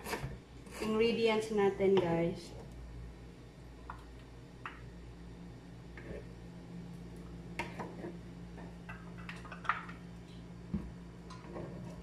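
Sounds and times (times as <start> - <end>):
knife scraping on wooden board: 0.0 - 1.0
low steady hum: 0.0 - 12.0.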